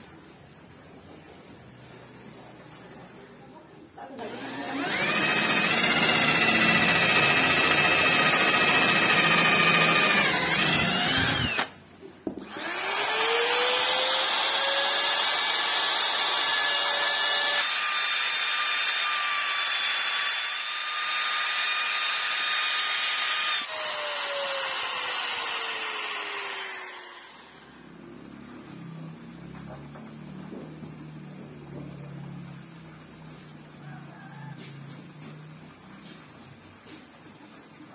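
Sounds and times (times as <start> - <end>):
electric drill boring: 4.2 - 11.8, 12.4 - 27.9
router whining: 4.2 - 11.8, 12.4 - 30.4.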